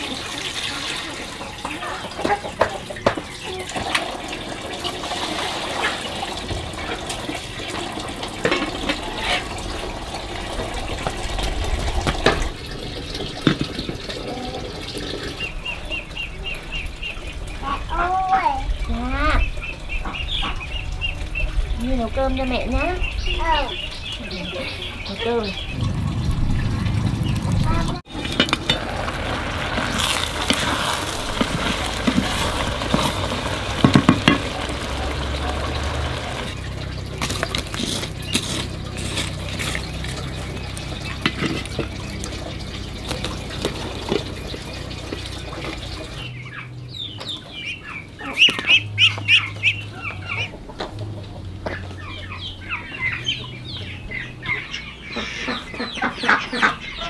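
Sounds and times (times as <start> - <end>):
chickens clucking: 0.0 - 29.1, 29.8 - 57.0
wood fire hissing and crackling: 27.3 - 44.2.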